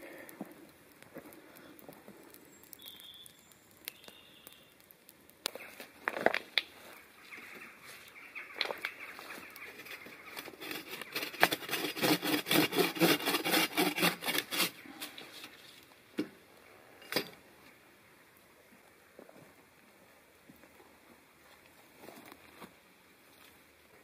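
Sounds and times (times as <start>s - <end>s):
bow saw cutting a log: 10.4s - 14.8s.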